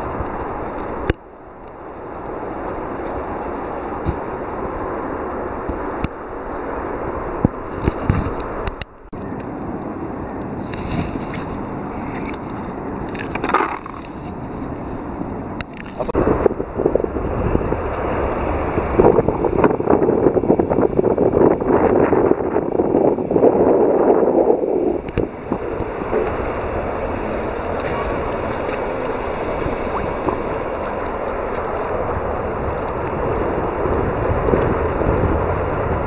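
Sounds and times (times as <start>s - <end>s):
wind buffeting microphone: 0.0s - 36.0s
water sloshing against wall: 25.6s - 31.9s.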